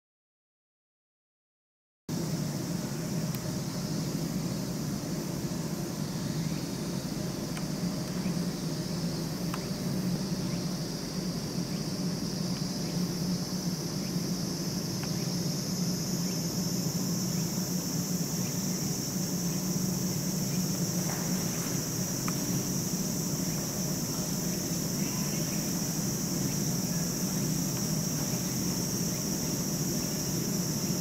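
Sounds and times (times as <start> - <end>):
insect chorus: 2.1 - 31.0
low steady hum: 2.1 - 31.0
faint clicks: 9.5 - 9.7, 22.2 - 22.5.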